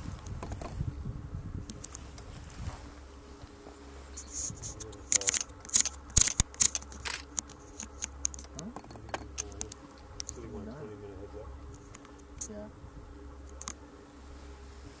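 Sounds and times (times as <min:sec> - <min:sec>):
low steady hum: 0:00.0 - 0:15.0
sharp clicks and rustles: 0:04.2 - 0:10.4, 0:11.7 - 0:12.6.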